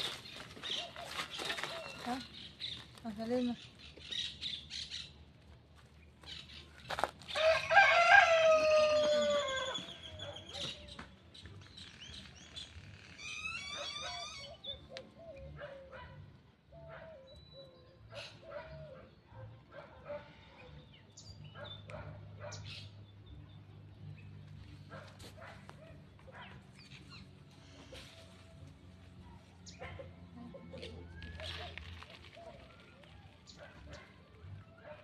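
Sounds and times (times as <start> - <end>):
rooster crowing: 7.3 - 10.0.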